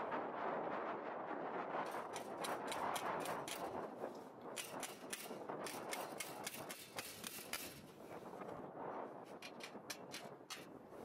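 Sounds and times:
wind noise: 0.0s - 11.0s
hand tool clicking on metal: 4.6s - 7.7s, 9.4s - 10.7s.

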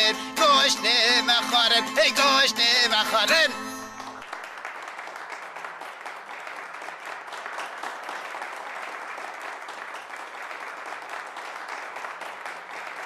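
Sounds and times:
crowd applauding: 3.2s - 13.0s.

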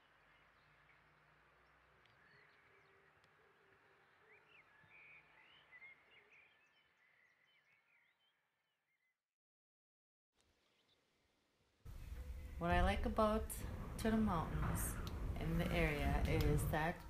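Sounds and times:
small birds chirping: 0.0s - 9.0s.

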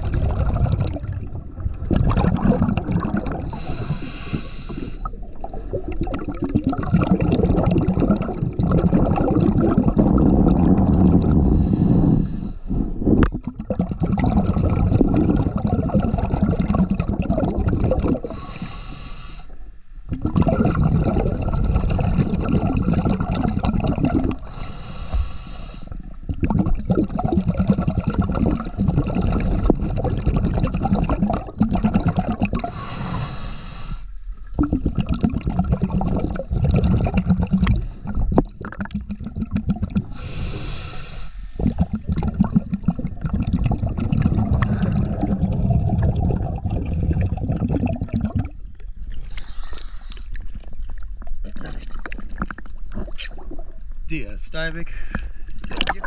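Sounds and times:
bubbling exhalation underwater: 0.0s - 4.1s, 4.7s - 18.6s, 20.1s - 24.7s, 25.9s - 33.4s, 34.4s - 40.8s, 41.6s - 53.9s, 55.6s - 56.0s
regulator hissing inhalations: 3.4s - 5.1s, 11.4s - 12.9s, 18.2s - 19.6s, 24.4s - 26.0s, 32.7s - 34.2s, 40.1s - 41.7s, 49.2s - 50.4s.

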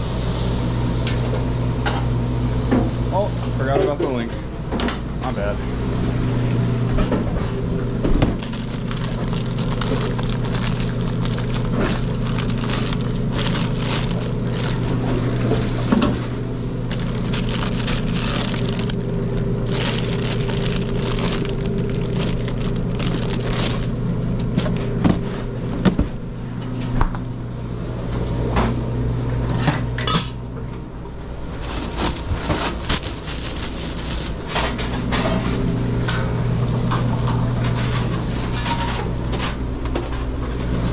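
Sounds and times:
kitchen equipment humming: 0.0s - 40.9s
plastic bag crinkling: 8.3s - 15.1s, 16.6s - 24.8s, 31.5s - 34.5s
fridge door and utensils clattering: 29.5s - 30.4s, 31.4s - 40.9s.

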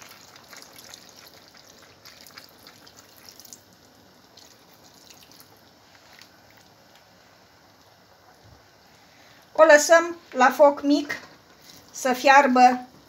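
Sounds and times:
water pouring into a pot: 0.0s - 6.7s
faint water drips: 0.0s - 7.1s.

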